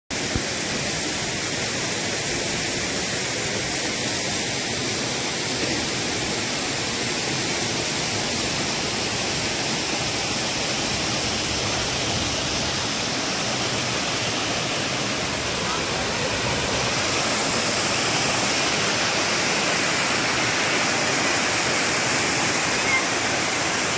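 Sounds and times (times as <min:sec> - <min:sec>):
steady rushing noise: 0:09.8 - 0:22.1.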